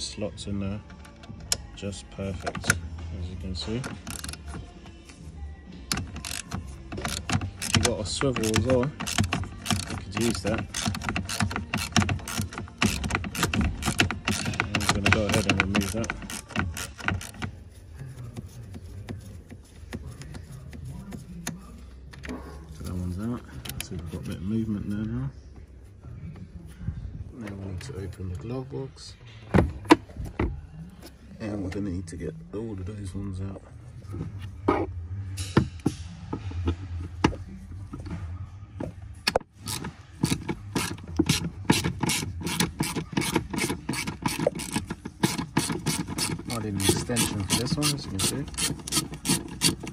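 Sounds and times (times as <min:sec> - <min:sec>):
ratchet wrench clicking: 0:03.8 - 0:04.6, 0:05.9 - 0:17.5, 0:39.5 - 0:49.9.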